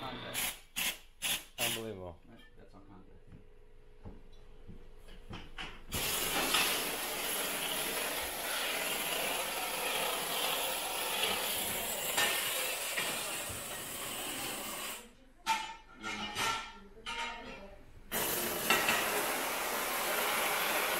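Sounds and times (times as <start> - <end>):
steam cleaner hissing: 0.0 - 1.9, 5.9 - 15.0, 18.1 - 20.9.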